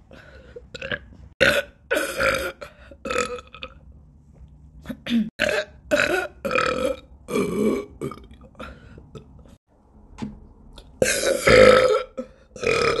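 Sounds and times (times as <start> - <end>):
woman burping loudly: 0.7 - 3.7, 5.4 - 8.7, 11.0 - 13.0.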